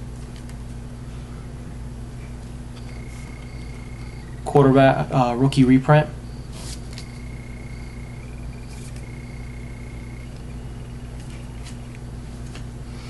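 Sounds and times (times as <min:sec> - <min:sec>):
low electrical hum: 0:00.0 - 0:13.0
cards brushing together: 0:06.5 - 0:07.1, 0:08.7 - 0:09.1.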